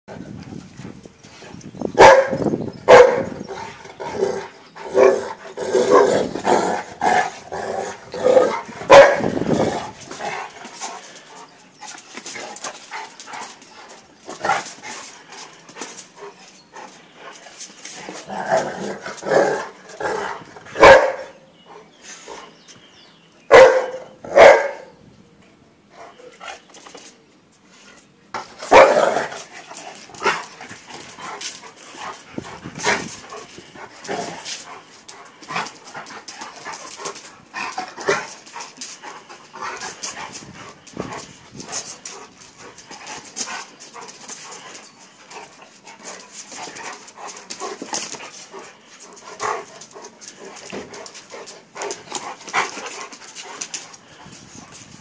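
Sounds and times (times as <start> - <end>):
dogs barking: 2.0 - 3.4, 8.2 - 9.4, 20.8 - 21.4, 23.5 - 24.9, 28.7 - 29.3.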